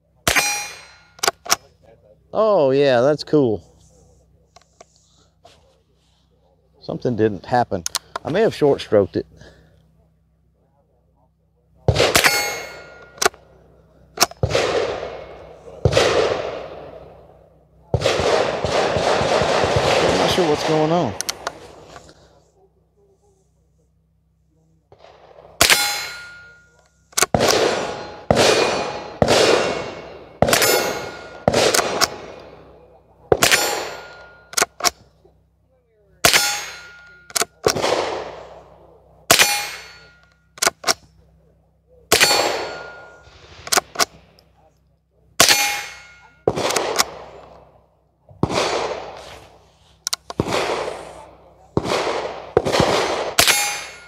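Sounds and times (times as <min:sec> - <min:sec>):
ring of struck steel target: 0:00.2 - 0:01.2, 0:11.9 - 0:13.3, 0:25.6 - 0:26.8, 0:27.7 - 0:32.4, 0:33.4 - 0:34.6, 0:36.2 - 0:37.4, 0:39.3 - 0:40.2, 0:42.1 - 0:43.3, 0:45.4 - 0:46.6, 0:53.4 - 0:54.0
rifle shots: 0:00.2 - 0:01.6, 0:11.8 - 0:13.6, 0:14.2 - 0:22.0, 0:24.9 - 0:35.0, 0:36.2 - 0:41.1, 0:42.1 - 0:44.4, 0:45.4 - 0:47.8, 0:48.4 - 0:54.0.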